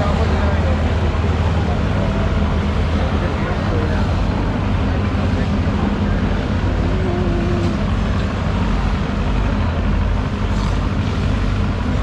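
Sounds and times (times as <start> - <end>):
machinery rumbling: 0.0 - 12.0.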